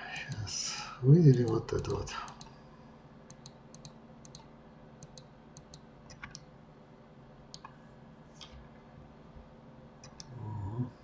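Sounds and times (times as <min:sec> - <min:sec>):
computer mouse clicking: 0:03.3 - 0:06.5, 0:10.0 - 0:10.3.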